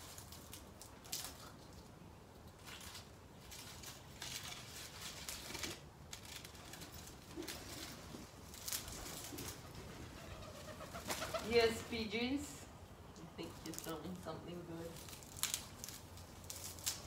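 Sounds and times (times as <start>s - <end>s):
rustling of garden plants: 0.0s - 17.0s
pigeon cooing: 8.9s - 11.7s.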